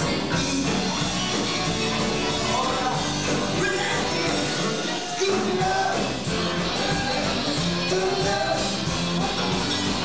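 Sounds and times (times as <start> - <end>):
rock band playing: 0.0 - 10.0
person singing: 2.2 - 8.8.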